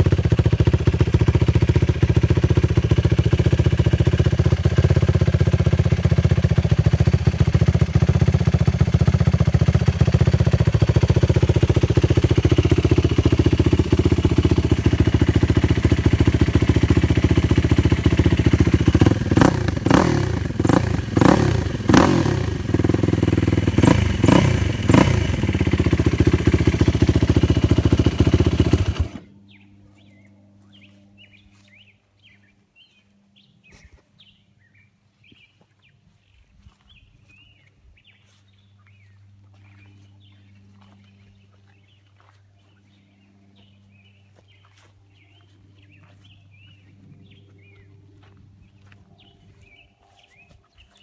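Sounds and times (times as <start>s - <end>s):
quad bike engine running: 0.0s - 32.4s, 38.9s - 50.4s
small birds chirping: 0.0s - 51.0s.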